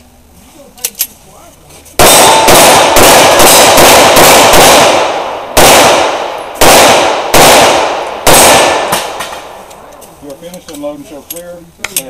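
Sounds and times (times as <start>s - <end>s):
pistol shots with echo: 2.0s - 9.6s.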